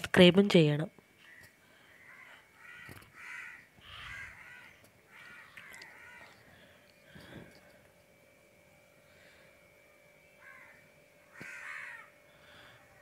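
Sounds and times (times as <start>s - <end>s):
crows cawing: 1.2s - 6.8s, 10.4s - 13.0s.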